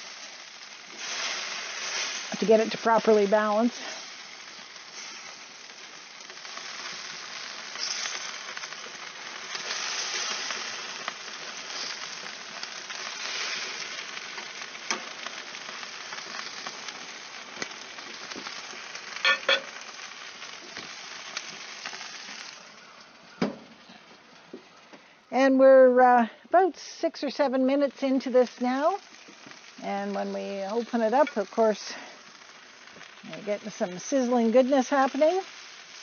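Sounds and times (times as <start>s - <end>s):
meat sizzling on a grill: 0.0s - 24.8s, 25.5s - 36.0s
metal tongs clinking: 19.2s - 19.7s.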